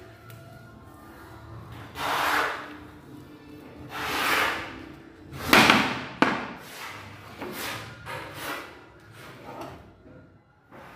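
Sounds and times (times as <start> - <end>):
wood rubbing and scraping on floor: 3.9 - 9.8.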